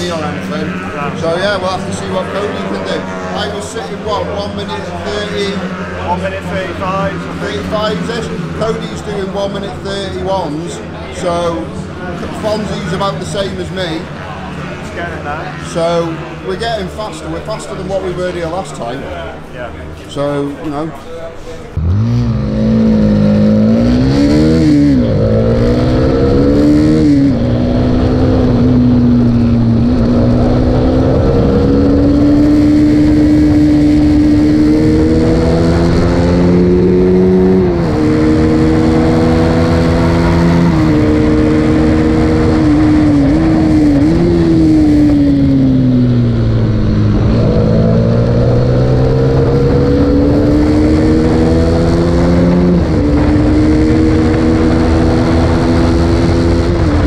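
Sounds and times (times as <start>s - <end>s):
motorcycle engine revving: 0.0s - 18.8s, 21.7s - 57.0s
wind noise on microphone: 40.1s - 57.0s.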